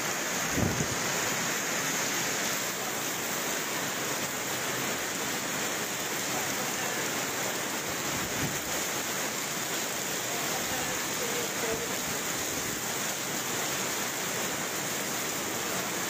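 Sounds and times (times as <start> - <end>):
heavy rain pouring: 0.0 - 16.0
running water: 0.0 - 16.0.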